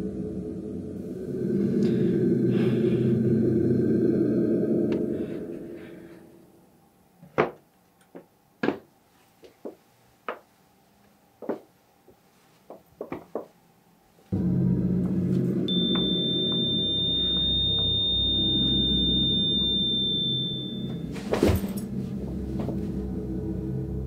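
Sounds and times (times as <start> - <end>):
loud low electronic drone: 0.0 - 6.1, 14.3 - 24.0
steady high-pitched tone: 0.0 - 6.6, 14.4 - 24.0
footsteps: 11.4 - 13.6, 20.9 - 23.1.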